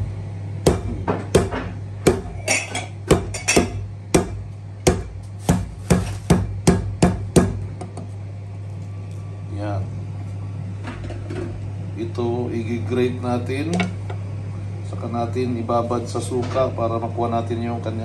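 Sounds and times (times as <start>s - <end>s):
steady low hum: 0.0s - 18.0s
knife chopping hard fruit: 0.6s - 2.4s, 3.0s - 7.7s.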